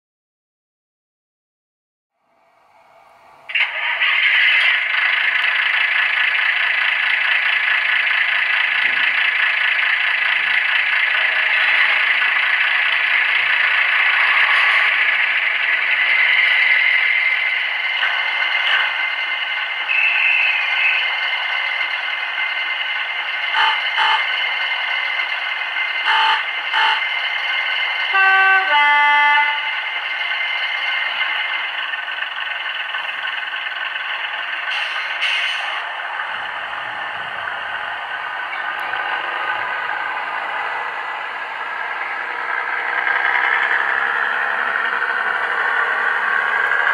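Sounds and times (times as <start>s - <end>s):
model diesel engine sound: 2.2s - 46.9s
two-tone horn: 23.6s - 24.3s, 26.1s - 27.1s, 28.1s - 29.9s.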